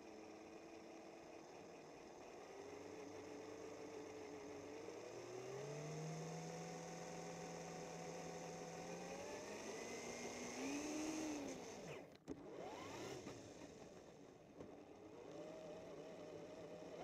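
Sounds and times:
toy truck motor whining: 0:05.4 - 0:13.4.

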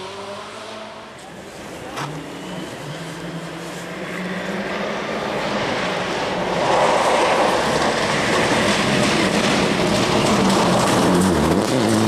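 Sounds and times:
tyres rushing on gravel: 0:06.6 - 0:12.0
rally car engine running hard: 0:08.0 - 0:12.0.

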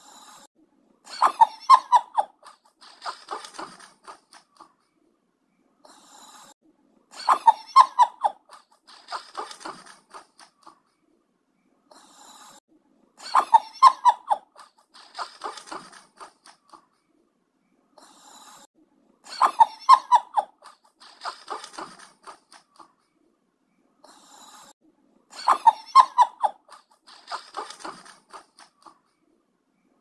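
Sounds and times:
soft breath sounds: 0:00.0 - 0:00.6, 0:02.6 - 0:06.7, 0:11.8 - 0:13.2, 0:17.8 - 0:18.8, 0:24.0 - 0:24.9.

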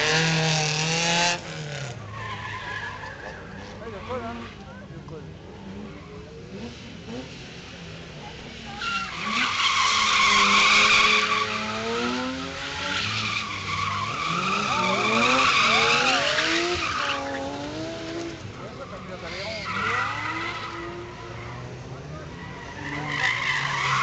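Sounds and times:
car engine revving: 0:00.0 - 0:24.0
tyres screeching: 0:01.8 - 0:04.8, 0:08.7 - 0:24.0.

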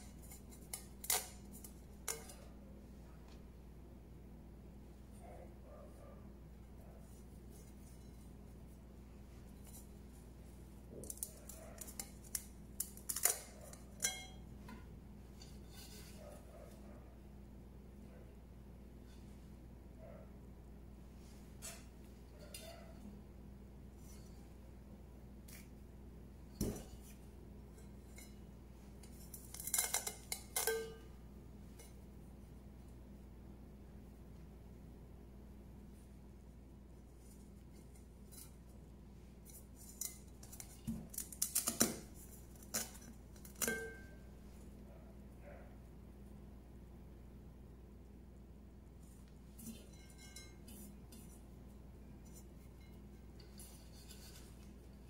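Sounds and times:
clicks and scrapes in metal strainer: 0:00.0 - 0:02.5, 0:11.0 - 0:14.4, 0:27.8 - 0:31.1, 0:39.4 - 0:44.1
metal steamer basket clinking: 0:11.0 - 0:14.4, 0:27.7 - 0:31.2, 0:42.6 - 0:44.2.

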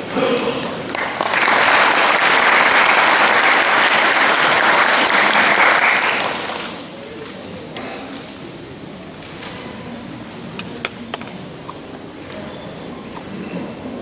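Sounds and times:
audience clapping: 0:00.6 - 0:07.4.

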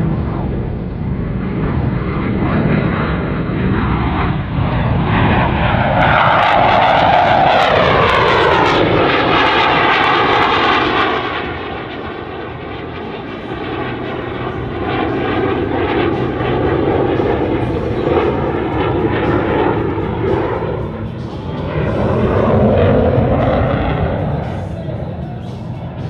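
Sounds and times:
jet flyby roar: 0:00.0 - 0:26.0
jet whine falling in pitch: 0:02.6 - 0:26.0.

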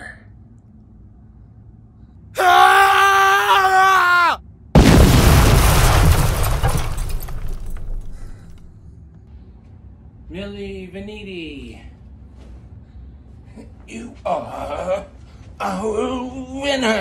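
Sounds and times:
high falling wail: 0:02.4 - 0:04.4
loud crash: 0:04.8 - 0:08.8.

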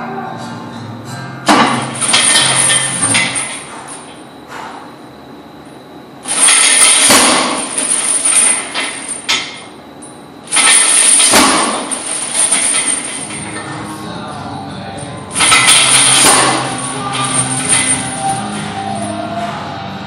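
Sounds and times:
steel chains clanking: 0:01.5 - 0:04.2, 0:06.2 - 0:13.8, 0:15.3 - 0:19.2.

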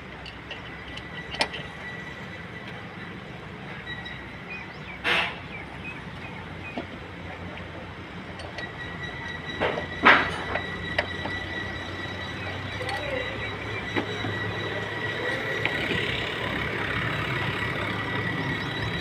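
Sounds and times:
hand tools clinking on metal: 0:00.0 - 0:02.8, 0:07.4 - 0:17.5.

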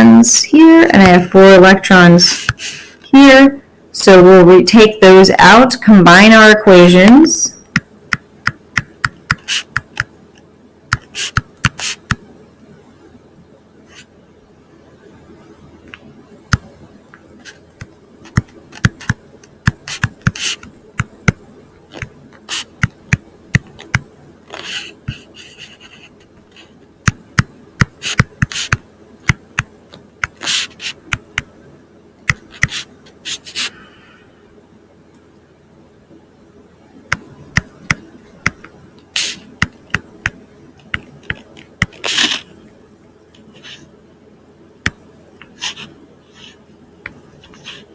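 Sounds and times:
stylus tapping on screen: 0:07.7 - 0:10.1, 0:10.9 - 0:12.2, 0:17.8 - 0:24.1, 0:27.0 - 0:30.4, 0:31.0 - 0:31.5, 0:32.3 - 0:32.8, 0:37.1 - 0:38.7, 0:39.6 - 0:42.0
stylus scratchy strokes: 0:09.4 - 0:09.8, 0:11.0 - 0:12.1, 0:19.8 - 0:20.7, 0:24.5 - 0:26.8, 0:28.0 - 0:28.8, 0:30.4 - 0:31.1, 0:45.4 - 0:46.6, 0:47.4 - 0:47.9.

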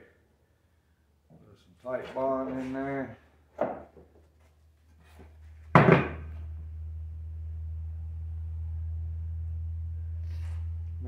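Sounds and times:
wooden boards knocking on workbench: 0:03.6 - 0:04.1, 0:05.7 - 0:06.3
steady low hum: 0:04.3 - 0:11.0.

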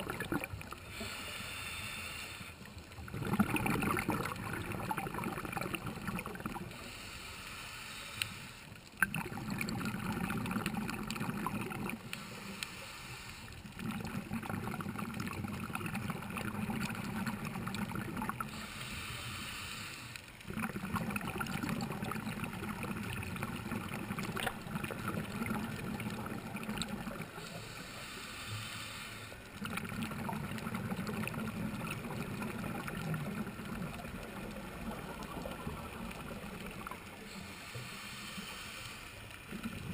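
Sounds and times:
bubbling gurgle of exhaled air: 0:00.0 - 0:01.2, 0:02.6 - 0:06.9, 0:09.0 - 0:12.3, 0:13.6 - 0:18.8, 0:20.4 - 0:28.2, 0:29.5 - 0:38.7, 0:39.3 - 0:39.9
regulator hissing inhale: 0:00.8 - 0:02.8, 0:06.7 - 0:08.9, 0:12.0 - 0:13.8, 0:18.4 - 0:20.4, 0:27.3 - 0:29.6, 0:37.1 - 0:39.6.

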